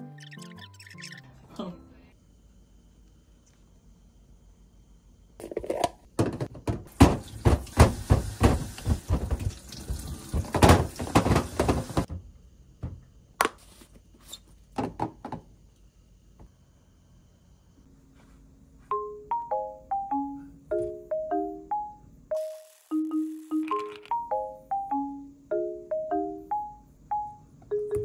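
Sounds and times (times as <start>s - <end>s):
food containers knocking and clattering: 5.4s - 12.2s, 14.7s - 15.5s.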